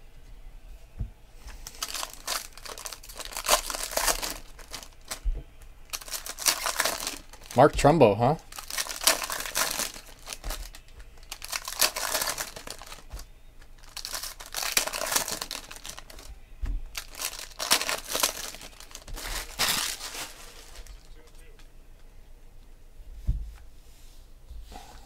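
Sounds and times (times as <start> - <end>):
foil wrapper crinkling: 1.6 - 7.7, 8.4 - 16.3, 16.9 - 21.6.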